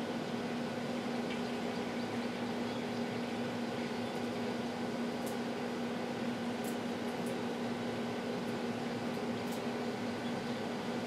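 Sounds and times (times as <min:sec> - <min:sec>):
steady mechanical hum: 0:00.0 - 0:11.0.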